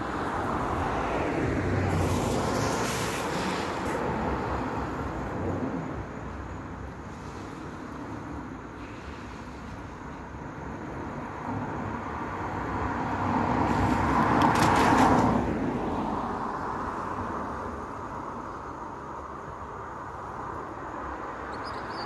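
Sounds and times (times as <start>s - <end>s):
car tyres hissing on wet road: 0.7s - 5.1s, 7.0s - 10.4s, 12.8s - 16.4s.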